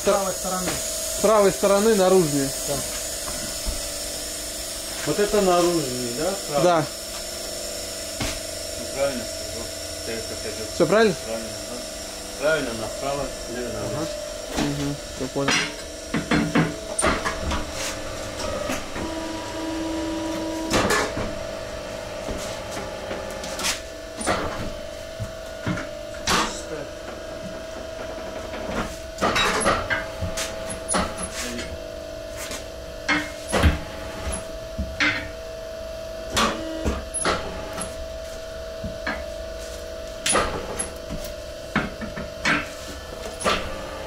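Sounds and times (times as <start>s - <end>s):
machine hum: 0.0s - 44.0s
metal clanks and knocks: 15.5s - 17.7s.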